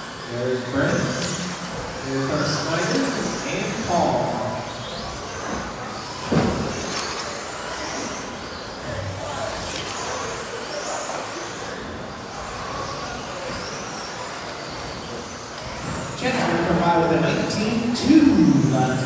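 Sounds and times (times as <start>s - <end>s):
electric motors whining: 0.0s - 19.0s.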